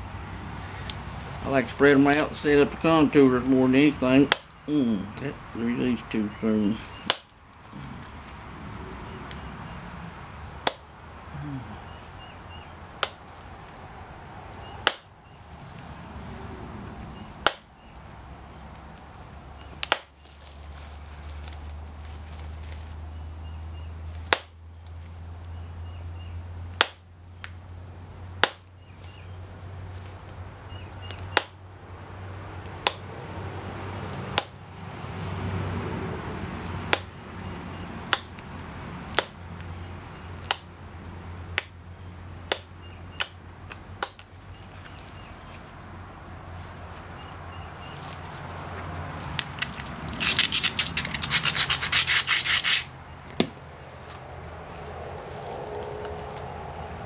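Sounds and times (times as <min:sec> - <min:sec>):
scratching against stone: 0:48.0 - 0:53.6.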